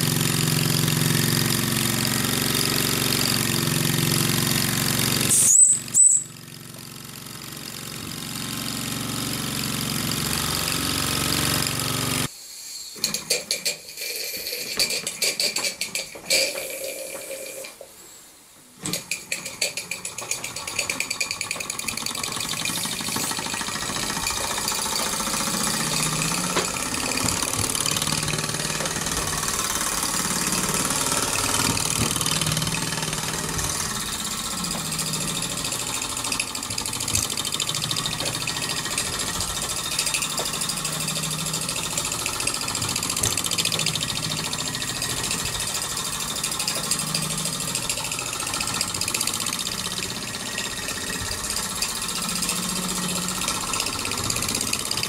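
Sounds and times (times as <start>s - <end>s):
steam engine chuffing: 19.4s - 55.0s.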